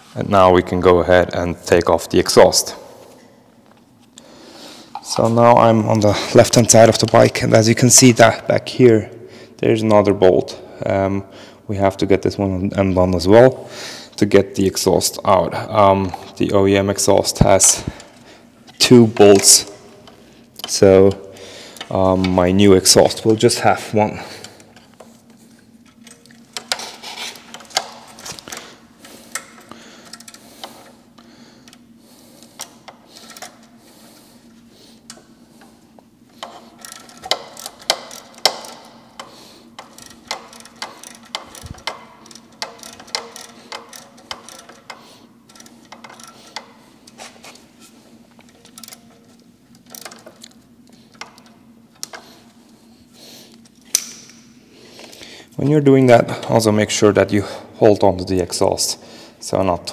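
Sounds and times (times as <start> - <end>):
socket ratchet clicking: 36.3 - 47.2, 48.4 - 52.3, 53.8 - 54.4.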